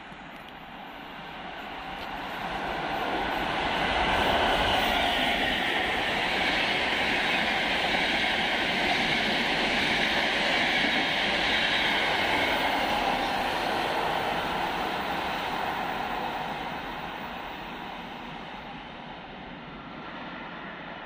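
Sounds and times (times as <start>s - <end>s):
train wheels rolling on rails: 0.0s - 18.8s.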